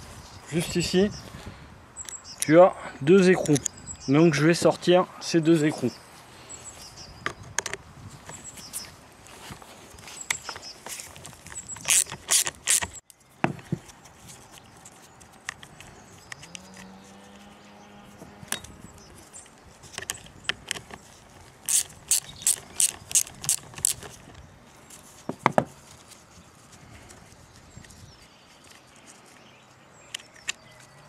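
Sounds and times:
socket ratchet clicking: 0:11.8 - 0:13.0, 0:21.6 - 0:24.1.

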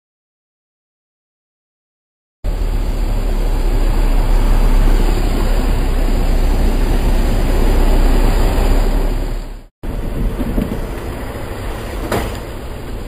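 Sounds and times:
car engine rumbling through mud: 0:02.5 - 0:13.0.

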